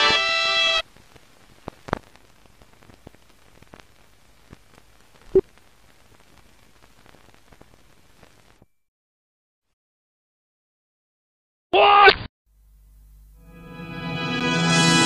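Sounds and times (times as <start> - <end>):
film soundtrack hiss: 0.0 - 8.8, 12.5 - 15.0
crackles and clicks: 0.8 - 8.8.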